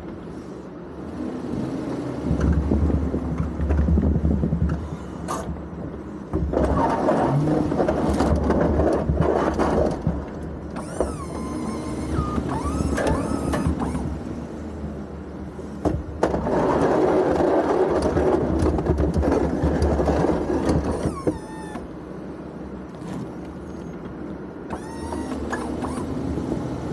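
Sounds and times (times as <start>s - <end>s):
pickup truck engine under load: 0.0s - 26.9s
snow plow scraping pavement: 0.0s - 26.9s
hydraulic pump whining: 10.6s - 14.8s, 18.0s - 22.3s, 22.9s - 26.9s.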